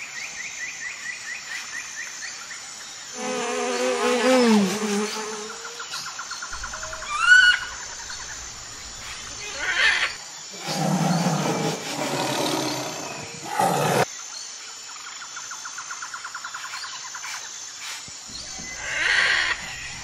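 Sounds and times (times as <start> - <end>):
low growling animal call: 9.4 - 14.1.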